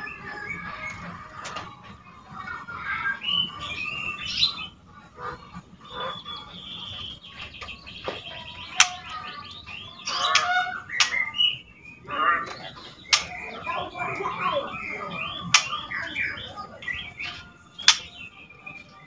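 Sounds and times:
bird chattering calls: 0:03.1 - 0:18.4
bird sharp ticks: 0:13.1 - 0:13.4.

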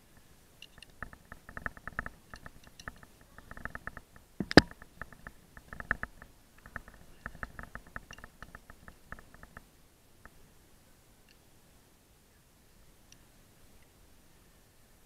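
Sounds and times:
climbing gear clicks and rustles: 0:00.1 - 0:09.6.

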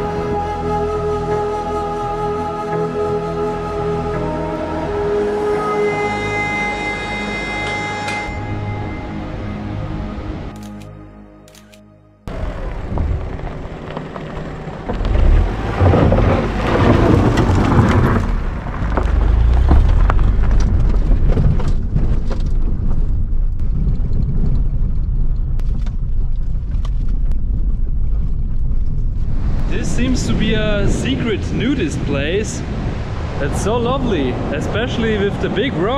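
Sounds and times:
wind buffeting microphone: 0:12.3 - 0:35.9
surf washing in: 0:29.3 - 0:35.9.

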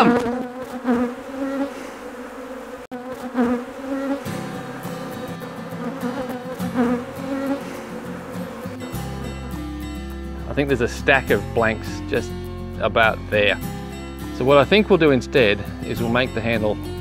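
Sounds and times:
bees buzzing: 0:00.0 - 0:12.6
guitar music: 0:04.2 - 0:17.0.

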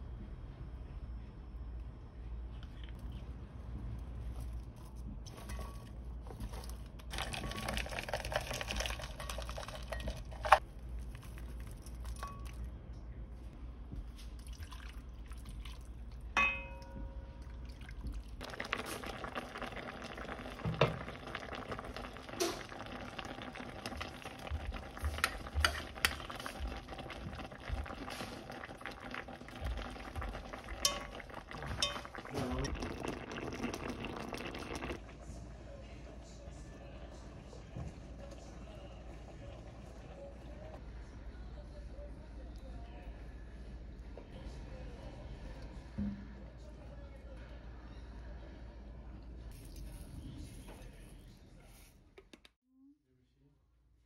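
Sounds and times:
sauce simmering: 0:06.5 - 0:12.6, 0:17.3 - 0:35.3
ringing clink: 0:16.4 - 0:17.3.

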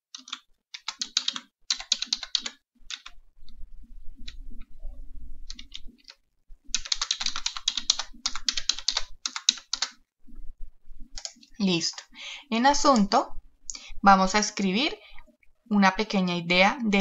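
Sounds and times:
keyboard typing: 0:00.1 - 0:03.6, 0:05.5 - 0:10.0, 0:11.1 - 0:12.1
faint low hum: 0:02.8 - 0:17.0.

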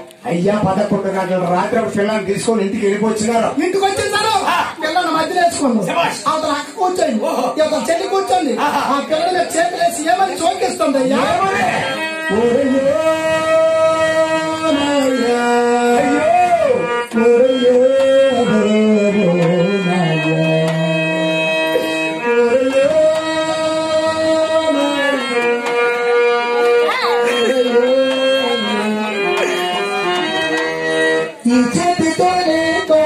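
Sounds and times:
drum accompaniment: 0:07.7 - 0:33.0
person singing long sliding notes: 0:11.8 - 0:33.0.

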